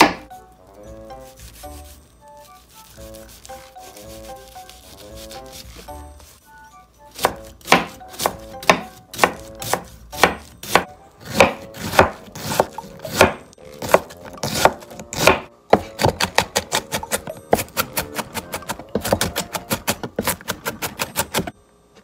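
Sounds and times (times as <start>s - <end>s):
knife chopping on plastic board: 0.0s - 0.3s, 7.2s - 21.4s.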